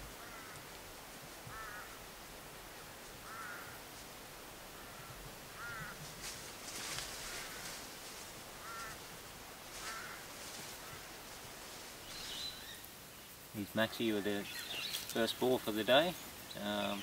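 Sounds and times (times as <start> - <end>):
rustle of leaves: 0.0 - 17.0
bird calling: 3.2 - 3.8, 8.6 - 9.0, 13.6 - 17.0.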